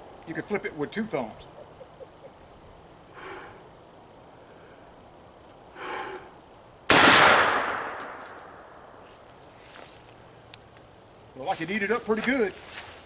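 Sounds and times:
shotgun blast with echo: 6.9 - 8.2.

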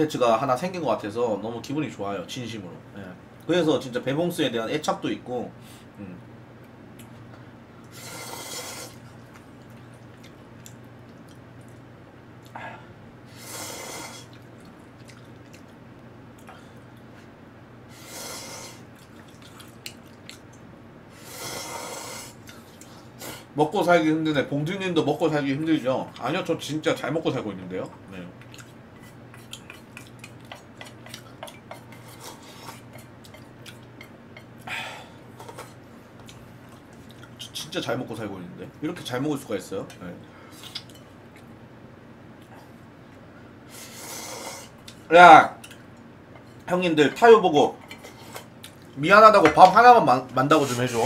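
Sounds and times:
person slurping noodles: 7.9 - 9.0, 13.3 - 14.4, 17.9 - 18.8, 21.2 - 22.4, 43.7 - 44.8
slurp of broth: 7.9 - 9.0
soft wet chewing: 8.8 - 12.6, 14.1 - 17.4, 18.8 - 20.7, 22.3 - 23.4, 27.8 - 34.7, 35.3 - 37.6, 39.9 - 41.6, 44.6 - 46.7, 47.7 - 49.0.

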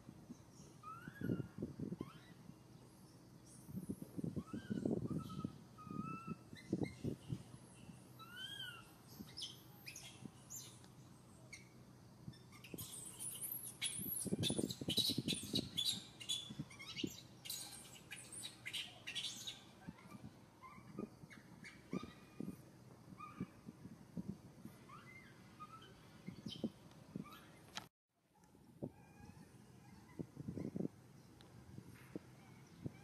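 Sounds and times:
thin squeaking cries: 0.8 - 2.4, 8.2 - 8.9, 24.9 - 27.7
birds chirping: 4.4 - 22.5.

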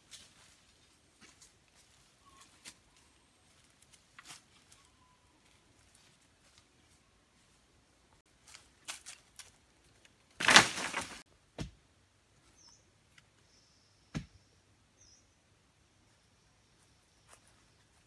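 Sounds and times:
branches rustling and snapping: 8.4 - 11.3
brush crashing onto ground: 10.3 - 11.8
wooden pole thudding into earth: 10.4 - 11.8, 14.1 - 14.4
bird chirping: 12.4 - 18.0.

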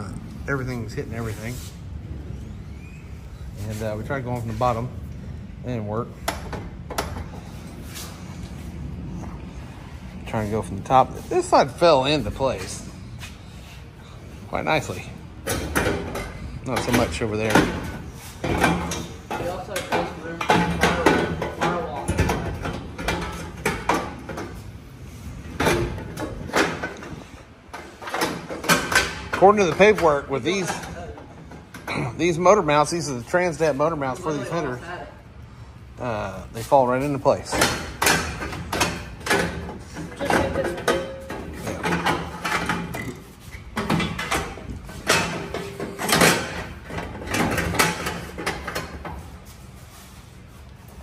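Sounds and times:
metal clunking and scraping: 14.8 - 33.0, 37.0 - 50.2.

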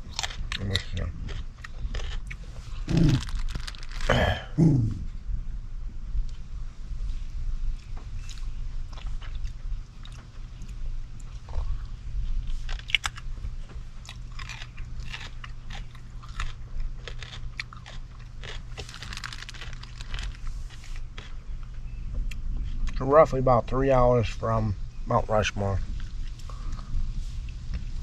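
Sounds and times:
person chewing crunchy snack: 0.0 - 5.1, 7.8 - 21.6.

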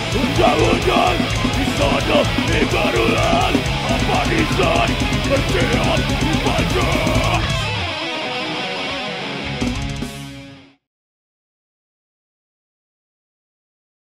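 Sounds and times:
fast cymbal beat: 0.0 - 7.6
vocals: 0.0 - 7.8
death metal band playing live: 0.0 - 10.7
electric guitar ringing: 0.0 - 10.8.

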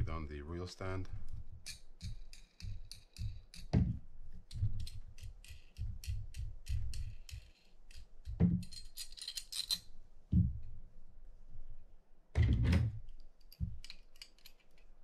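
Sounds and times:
small metal parts clicking: 1.6 - 3.7, 4.4 - 9.9, 13.1 - 15.0.

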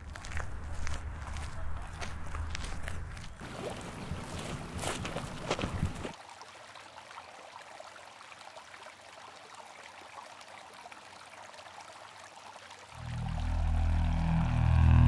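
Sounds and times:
river water trickling: 2.6 - 15.0
low drone: 13.0 - 15.0.

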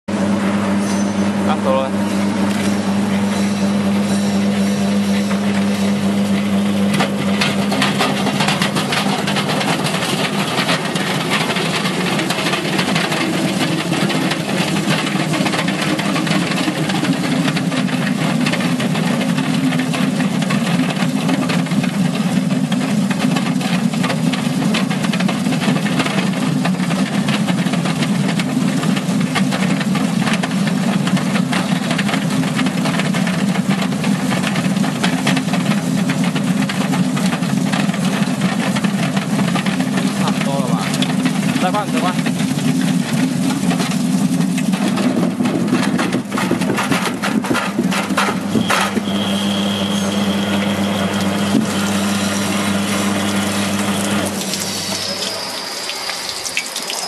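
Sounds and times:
machine motor hum: 0.1 - 55.5
potatoes tumbling in a drum: 1.7 - 57.0
water spraying: 2.2 - 22.2, 38.3 - 57.0.

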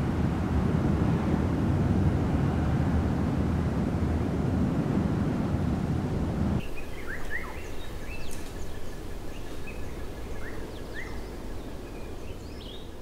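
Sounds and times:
birds chirping: 6.6 - 13.0.

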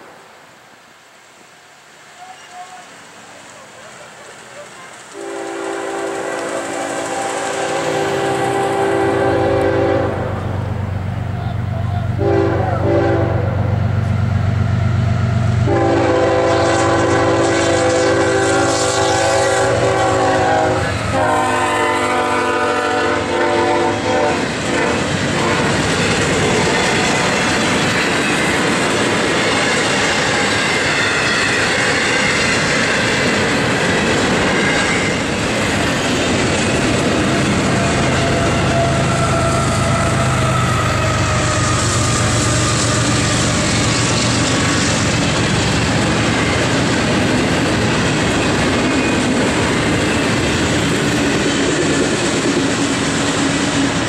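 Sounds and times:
locomotive engine: 3.6 - 54.0
train wheels clacking on rails: 4.6 - 9.8, 14.0 - 54.0
locomotive horn blast: 5.1 - 10.6, 11.9 - 13.7, 15.6 - 26.0, 37.2 - 44.8.

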